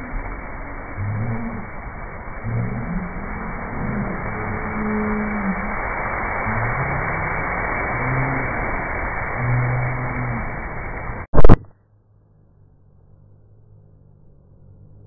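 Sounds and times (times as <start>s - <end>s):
water spray splashing: 0.0s - 11.6s
loud burst of noise: 0.0s - 11.7s
low humming tones: 0.0s - 15.0s.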